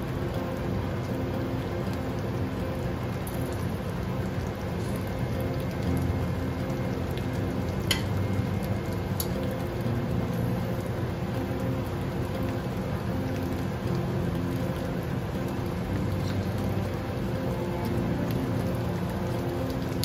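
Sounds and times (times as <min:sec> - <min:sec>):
low hum: 0:00.0 - 0:20.0
cabbage sizzling in a pan: 0:03.2 - 0:13.1.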